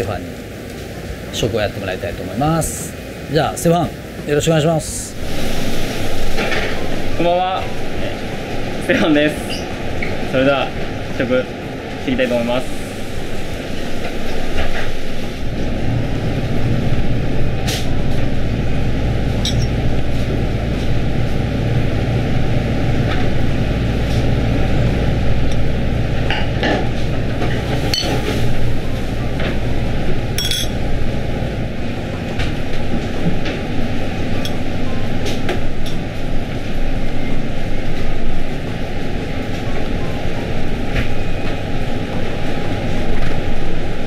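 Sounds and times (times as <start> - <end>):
kitchen machinery hum: 0.0 - 44.0
spoon clinking against glass: 30.4 - 30.8.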